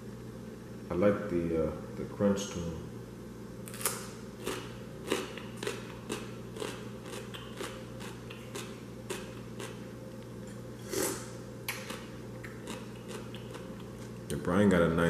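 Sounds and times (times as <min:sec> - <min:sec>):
person chewing crunchy food: 0:03.7 - 0:14.3.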